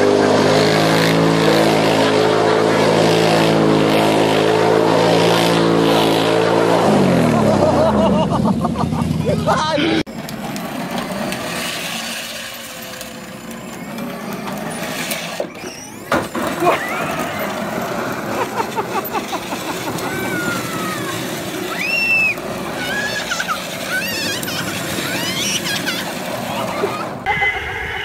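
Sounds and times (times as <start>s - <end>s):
plastic wheels grinding on concrete: 10.1s - 28.0s.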